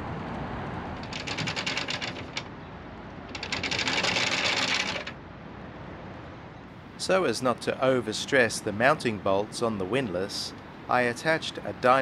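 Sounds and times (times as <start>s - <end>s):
windlass pawl clicking rapidly: 1.0s - 2.6s, 3.2s - 5.2s.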